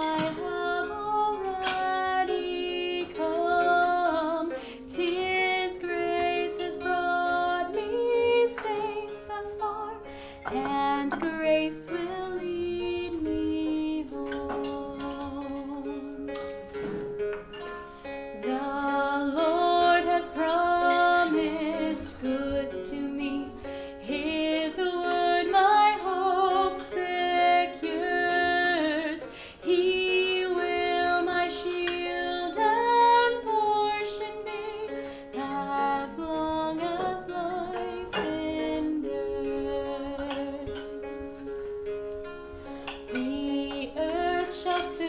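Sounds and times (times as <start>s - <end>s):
person singing: 0.0s - 17.0s, 18.3s - 41.8s, 42.9s - 45.0s
plucked string accompaniment: 0.0s - 45.0s.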